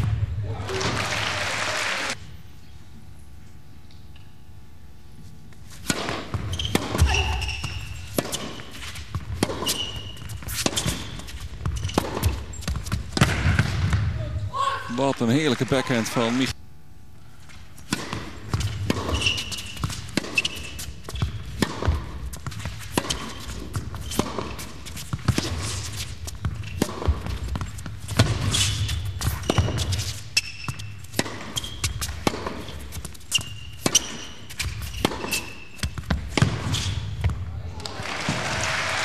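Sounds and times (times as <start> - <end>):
rackets hitting tennis ball: 5.7 - 14.2, 17.6 - 37.4
ball bouncing on court: 5.8 - 14.5, 17.8 - 37.5
shoe squeaks: 6.3 - 13.1, 18.5 - 37.2.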